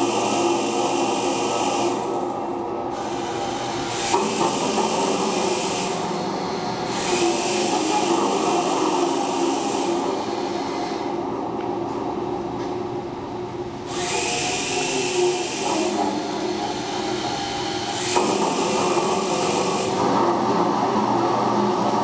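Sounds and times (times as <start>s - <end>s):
mechanical whirr and rubbing: 13.9s - 20.5s.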